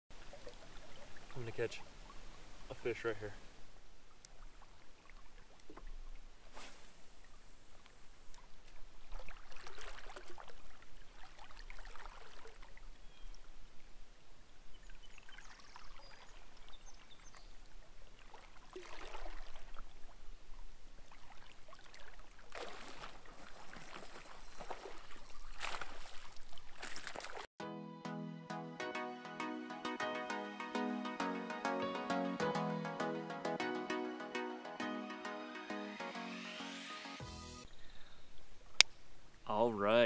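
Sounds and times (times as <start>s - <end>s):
river water sloshing and splashing: 0.1s - 2.7s, 3.9s - 13.5s, 14.7s - 27.5s.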